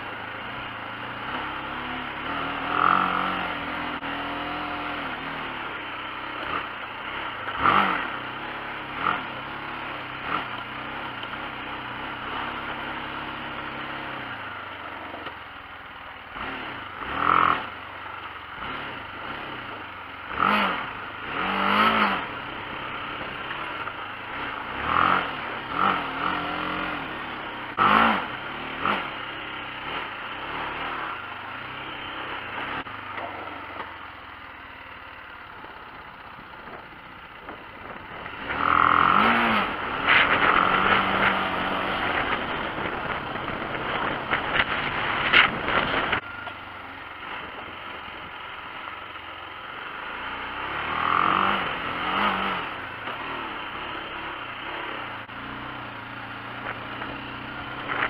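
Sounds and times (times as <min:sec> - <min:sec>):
motorcycle engine revving: 0:00.0 - 0:58.0
gravel and loose parts clattering: 0:29.9 - 0:55.2, 0:56.2 - 0:58.0.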